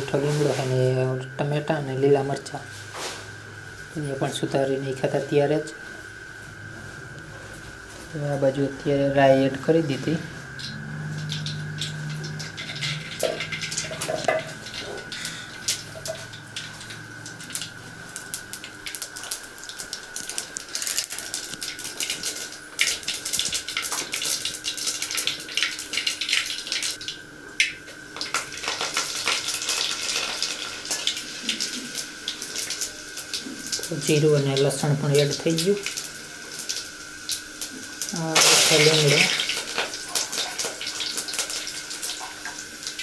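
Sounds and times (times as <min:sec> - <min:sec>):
sizzling: 0:00.0 - 0:43.0
seeds popping in hot oil: 0:10.5 - 0:43.0.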